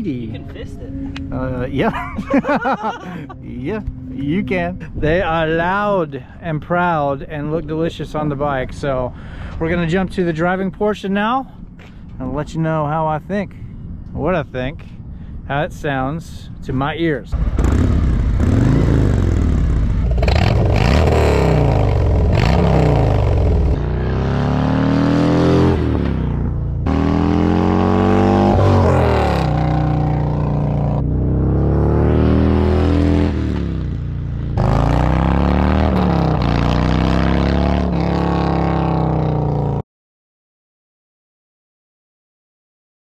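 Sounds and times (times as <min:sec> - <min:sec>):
motorcycle engine revving: 0:17.3 - 0:39.8.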